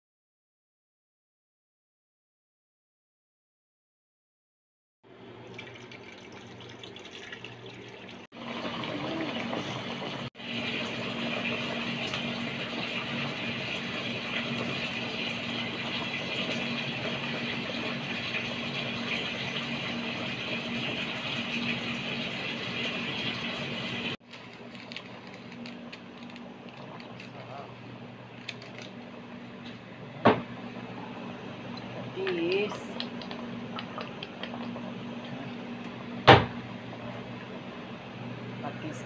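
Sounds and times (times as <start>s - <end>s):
broth boiling and bubbling: 5.1s - 39.0s.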